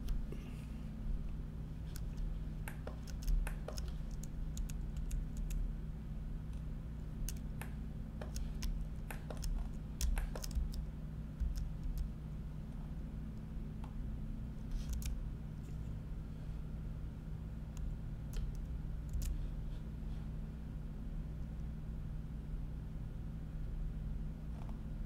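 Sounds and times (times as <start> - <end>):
low electrical hum: 0.0 - 25.0
keyboard and mouse clicking: 1.9 - 5.6, 7.2 - 12.1, 14.8 - 15.2, 17.8 - 19.4.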